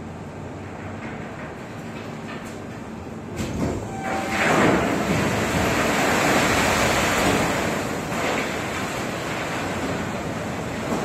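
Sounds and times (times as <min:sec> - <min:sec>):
coal rushing down chute: 0:03.4 - 0:11.0.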